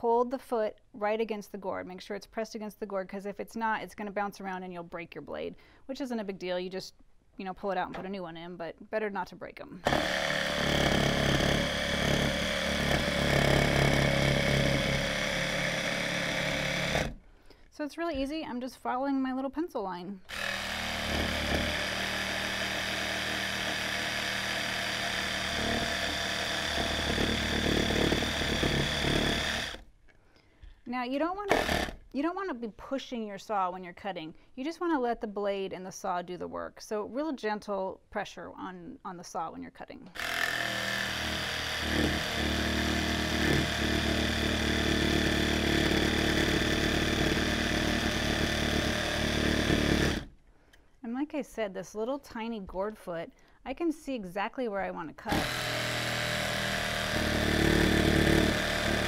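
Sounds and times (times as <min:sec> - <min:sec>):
small electric jigsaw running: 0:09.8 - 0:17.2, 0:20.3 - 0:29.8, 0:31.5 - 0:32.1, 0:40.2 - 0:50.3, 0:55.3 - 0:59.0.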